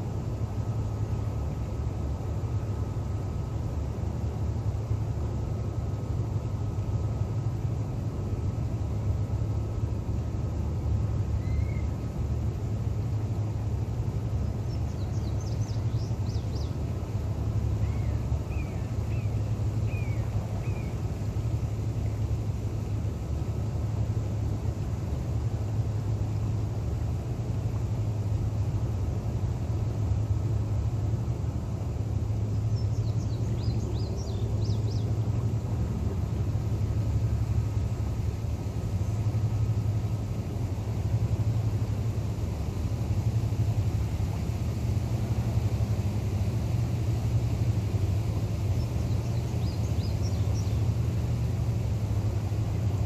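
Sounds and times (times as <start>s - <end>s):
low engine rumble: 0.0s - 53.0s
small birds chirping: 11.3s - 11.9s, 14.3s - 22.2s, 32.4s - 35.6s, 48.2s - 51.9s.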